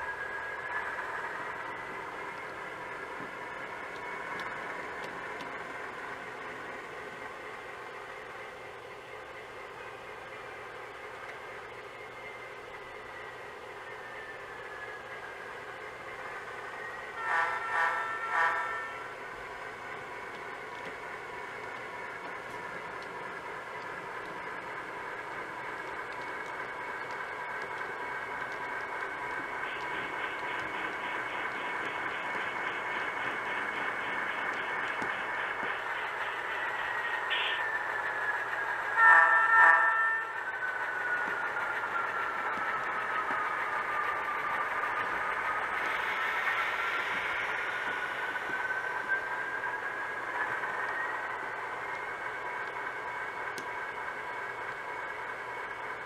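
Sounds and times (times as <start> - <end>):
model locomotive motor whine: 9.8 - 56.0
hiss: 43.4 - 49.0.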